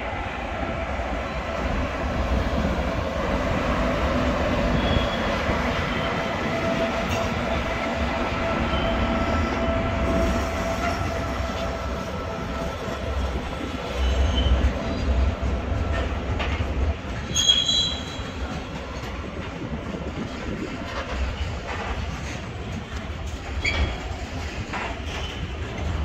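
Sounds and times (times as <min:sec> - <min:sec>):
steady train whine: 0:00.0 - 0:26.0
train rumbling on rails: 0:00.0 - 0:26.0
high-pitched wheel squeals: 0:17.3 - 0:18.3.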